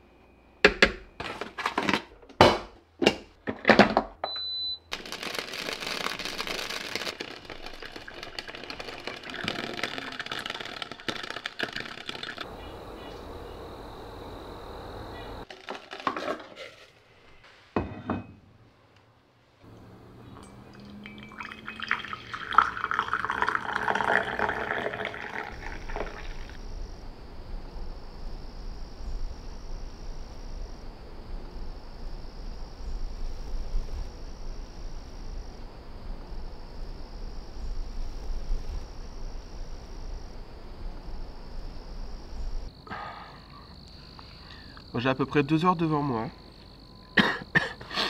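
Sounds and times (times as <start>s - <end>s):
coffee pouring into a mug: 7.0s - 12.5s, 20.4s - 26.6s
low rumble and hiss: 12.5s - 15.5s, 19.2s - 47.0s.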